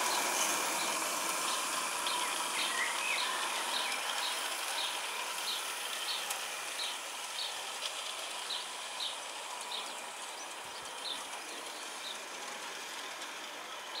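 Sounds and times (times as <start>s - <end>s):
steady outdoor hiss: 0.0s - 14.0s
small bird chirping: 0.1s - 7.6s.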